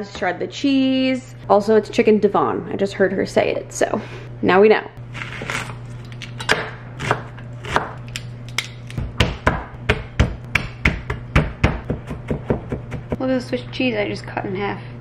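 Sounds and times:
knife chopping on wooden board: 6.5s - 8.0s, 9.0s - 13.2s.

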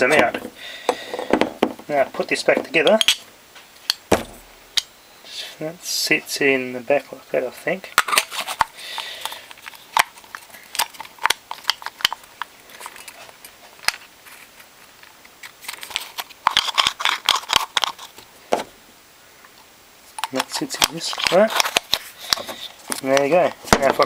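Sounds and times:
small parts clicking and knocking: 8.0s - 18.2s.

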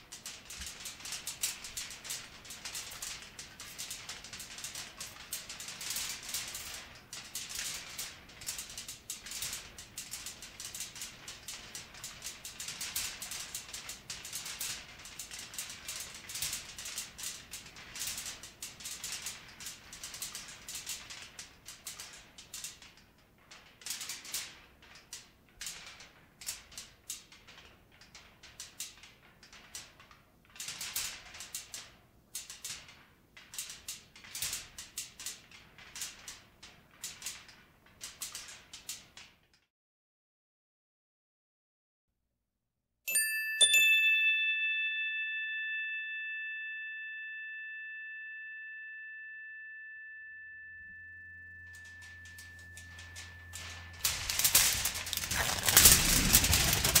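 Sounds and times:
irregular rattling and shaking: 0.0s - 39.5s, 51.1s - 57.0s.

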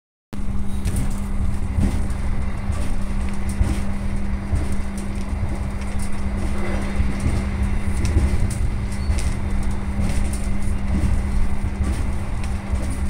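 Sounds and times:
train rumbling on rails: 0.4s - 13.0s.

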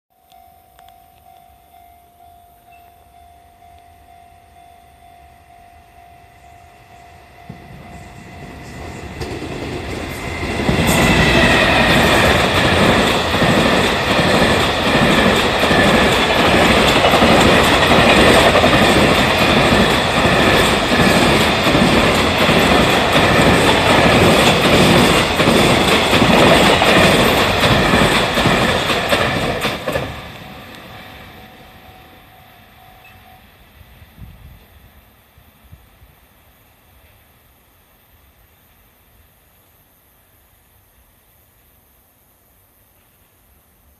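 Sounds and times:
level-crossing warning bell: 0.1s - 33.7s
freight train passing: 1.2s - 39.3s
wagons clattering over rails: 7.5s - 30.6s.

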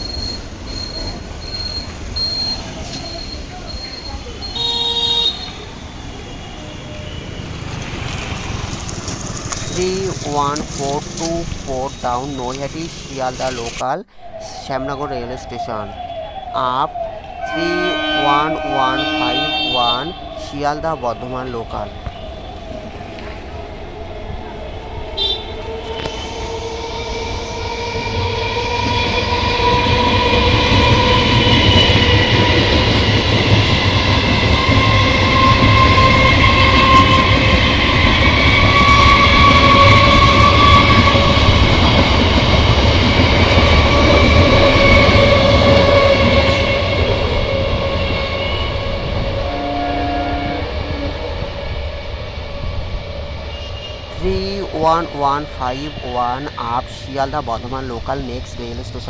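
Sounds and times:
train whine: 0.0s - 59.0s
train wheels clattering on rails: 27.6s - 49.4s.

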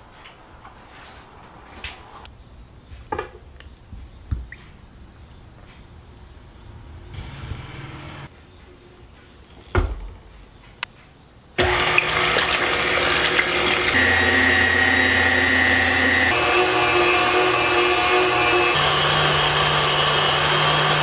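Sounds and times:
electric mixer running: 11.6s - 21.0s.

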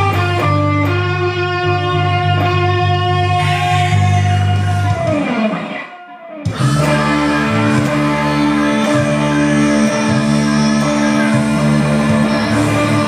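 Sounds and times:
electric guitar rock music: 0.0s - 13.0s
ringing guitar chord: 4.9s - 13.0s
pulsing bass line: 6.5s - 13.0s.

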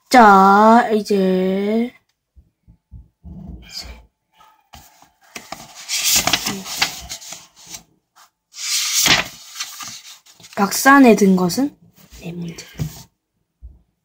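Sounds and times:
book pages rustling: 4.7s - 10.8s.

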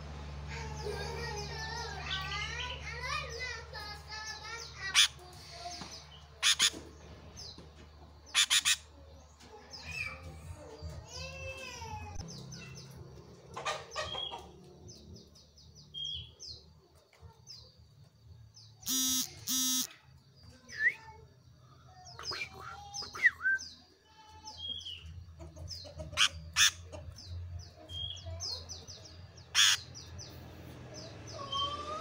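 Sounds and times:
bird singing chirps and warbles: 0.5s - 32.0s
bird harsh loud calls: 4.3s - 5.2s, 6.4s - 7.5s, 8.3s - 9.0s, 18.8s - 20.0s, 25.8s - 27.0s, 29.0s - 30.2s.

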